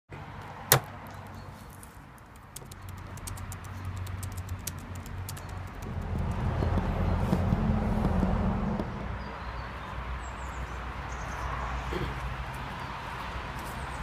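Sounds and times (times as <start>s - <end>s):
laptop keyboard typing: 2.1s - 7.0s.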